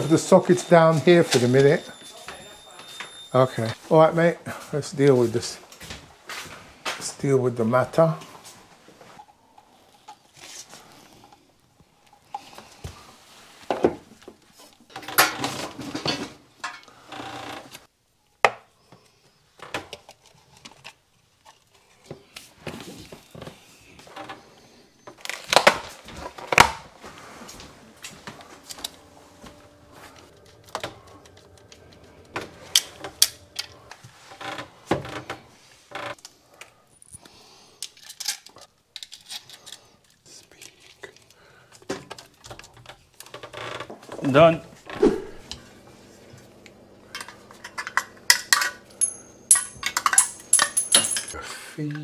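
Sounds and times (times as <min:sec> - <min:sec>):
rustling and scraping: 0:20.0 - 0:36.2
tools clicking and clattering: 0:47.1 - 0:51.4.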